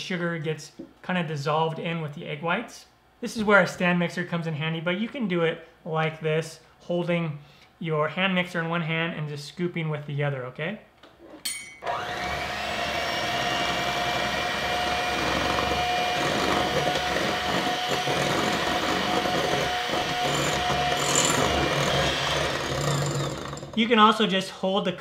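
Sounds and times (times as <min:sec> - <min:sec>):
electric hand mixer running: 0:11.8 - 0:23.8.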